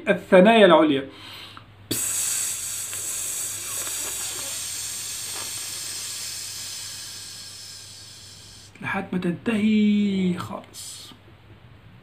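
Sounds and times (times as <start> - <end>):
man exhaling through teeth: 1.9 - 8.7.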